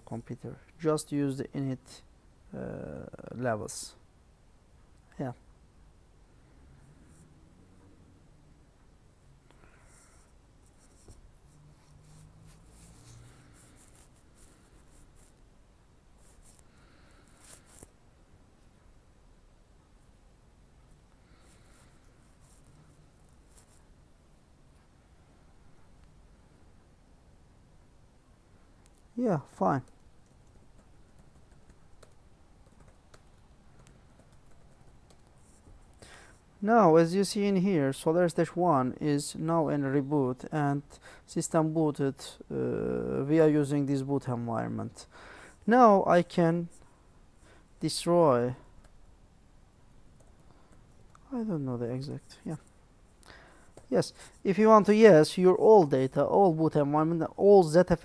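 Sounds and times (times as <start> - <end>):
faint room hum: 0.0 - 58.0
scratchy rustling: 10.0 - 15.5, 16.2 - 18.0, 21.5 - 23.9
faint keyboard keystrokes: 29.8 - 35.4.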